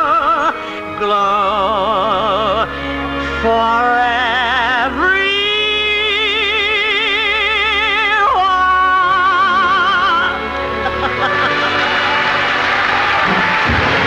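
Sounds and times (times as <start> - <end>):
woman singing with vibrato: 0.0 - 10.6.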